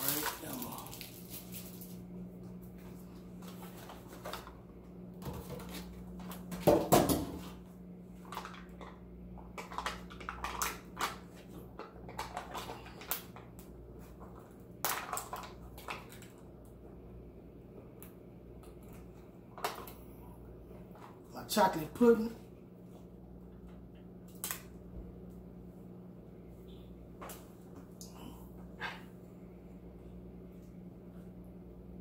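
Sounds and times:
packaging crackling and rustling: 0.0 - 2.1
steady low hum: 0.0 - 32.0.

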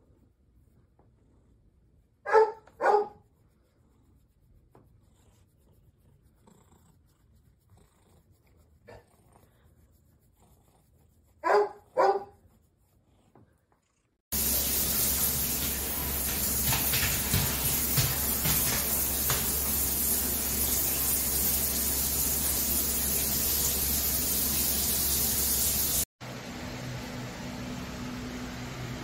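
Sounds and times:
shower water spraying: 14.3 - 26.1.

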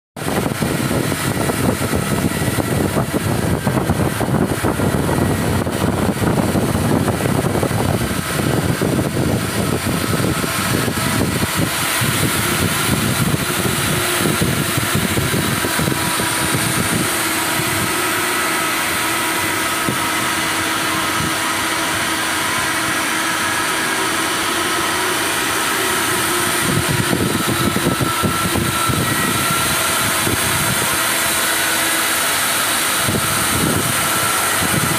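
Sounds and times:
cutting torch hissing: 0.3 - 34.9.

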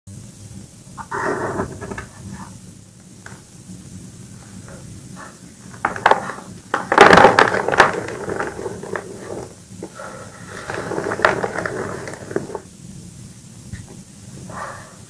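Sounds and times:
chalk crumbling: 5.7 - 12.7
dense crunch of chalk breaking: 5.8 - 12.7.

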